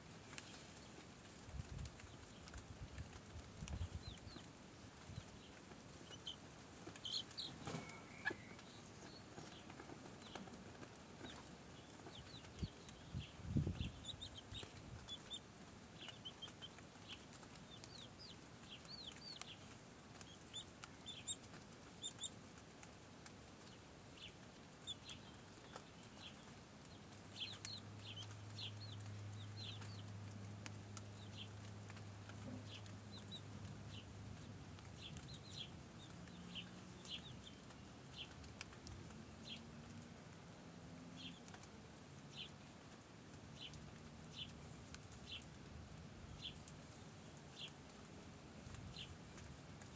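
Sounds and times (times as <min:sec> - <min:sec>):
chicks peeping: 0:00.2 - 0:40.0, 0:43.5 - 0:45.7, 0:46.3 - 0:49.9
hens clucking: 0:05.9 - 0:08.8.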